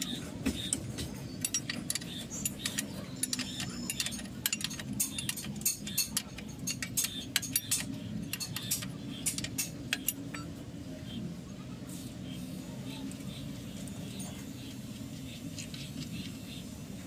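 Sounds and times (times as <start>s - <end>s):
steady low hum: 0.0s - 17.0s
spanner clinking on nut: 1.4s - 10.5s.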